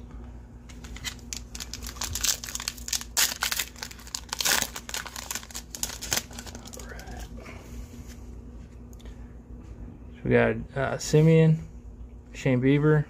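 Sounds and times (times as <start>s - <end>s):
foil wrapper tearing and crinkling: 0.7s - 7.3s.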